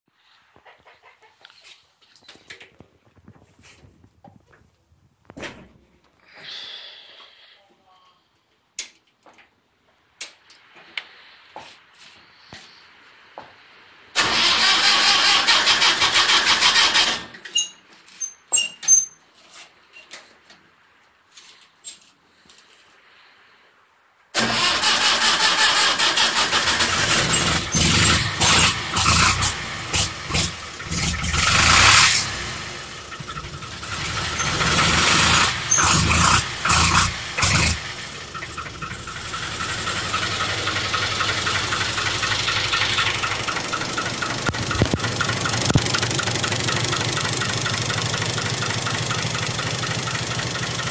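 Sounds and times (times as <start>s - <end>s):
diesel tractor engine starting: 14.1s - 17.8s, 24.4s - 50.9s
tractor engine idling: 14.2s - 17.4s, 24.4s - 50.9s.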